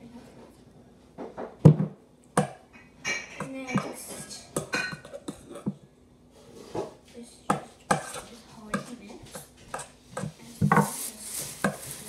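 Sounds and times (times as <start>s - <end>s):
crinkly rustle: 10.4s - 12.0s.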